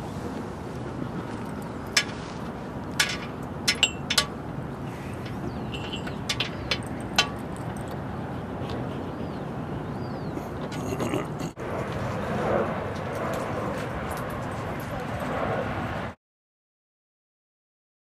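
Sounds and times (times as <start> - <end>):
leash chain clinking: 1.2 - 4.4, 5.2 - 8.1, 13.1 - 15.6.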